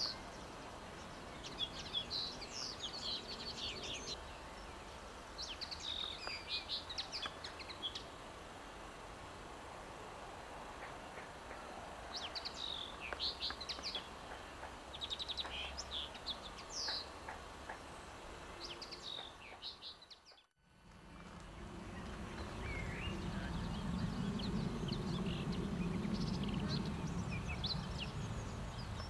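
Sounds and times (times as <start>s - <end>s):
songbird chirping and trilling: 0.0s - 8.2s, 10.8s - 20.5s, 21.1s - 29.0s
low rumble: 20.7s - 29.0s.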